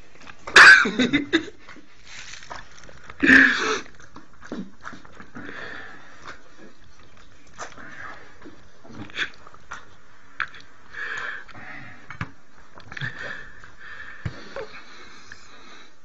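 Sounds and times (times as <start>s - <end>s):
breathy sniffs and wheezy breaths: 1.6s - 6.8s, 12.9s - 16.0s.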